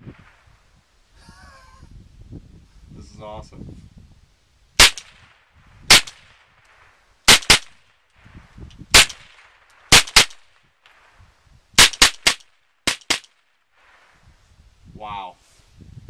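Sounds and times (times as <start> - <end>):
rifle shots: 4.8 - 7.9, 8.9 - 11.1, 11.8 - 14.1.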